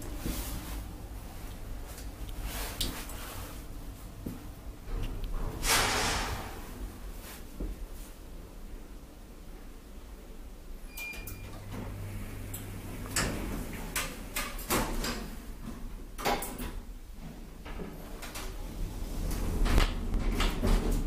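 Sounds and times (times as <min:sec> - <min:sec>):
door motor hum: 0:11.5 - 0:14.4.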